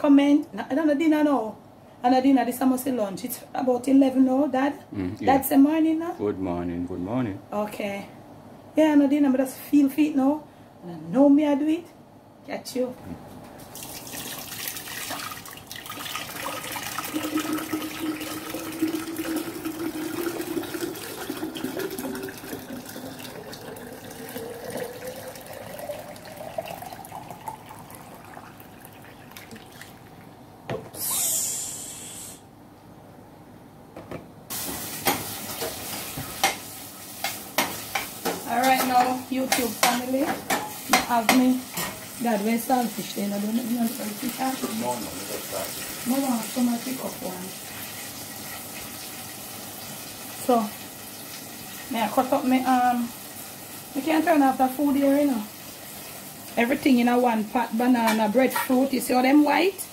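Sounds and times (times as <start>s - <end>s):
liquid splashing into a pitcher: 13.6s - 30.3s
short hiss: 31.0s - 32.5s.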